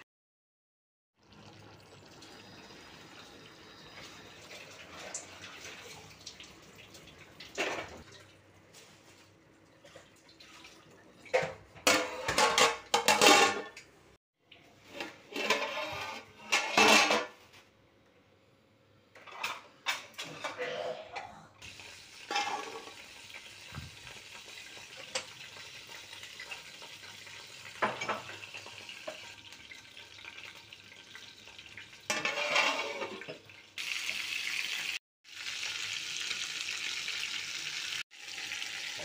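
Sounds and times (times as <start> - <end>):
steel cookware clanking: 11.3 - 13.9, 14.9 - 17.4, 22.2 - 23.4, 24.2 - 29.4, 32.0 - 33.4.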